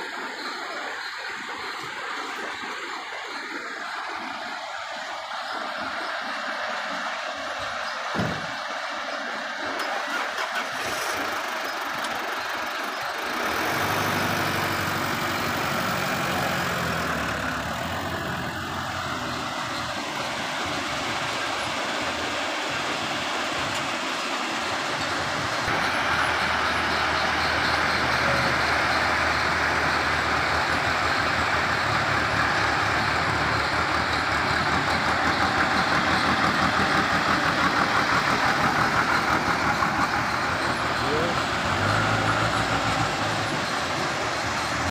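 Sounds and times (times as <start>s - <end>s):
backhoe loader engine running: 0.0s - 44.9s
truck diesel engine running: 0.0s - 44.9s.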